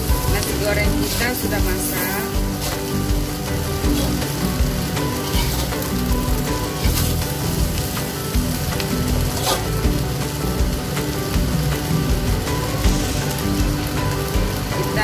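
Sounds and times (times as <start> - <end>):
rice sizzling in a wok: 0.0 - 15.0
soft background music: 0.0 - 15.0
spatula scraping pan: 3.8 - 4.4, 5.0 - 7.3, 9.3 - 9.8.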